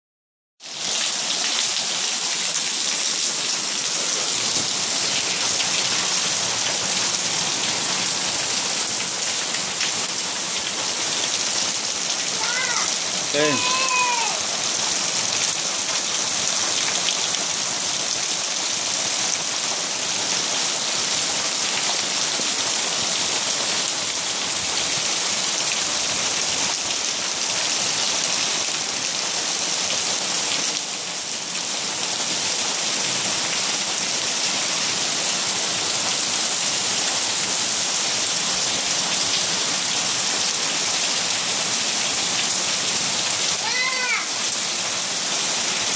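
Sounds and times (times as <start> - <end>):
heavy rain on pavement: 0.6 - 45.9.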